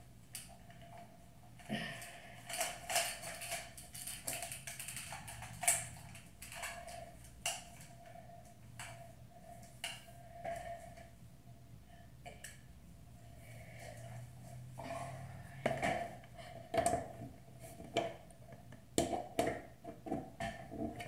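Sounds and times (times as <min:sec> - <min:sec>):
faint steady hum: 0:00.0 - 0:21.0
plastic clicks and rattles: 0:02.4 - 0:07.9.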